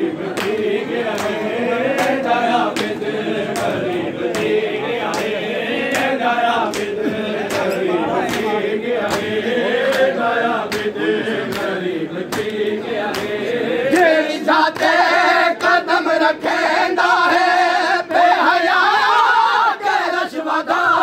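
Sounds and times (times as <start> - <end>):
men chanting together: 0.0 - 21.0
chest-beating slaps: 0.3 - 13.4.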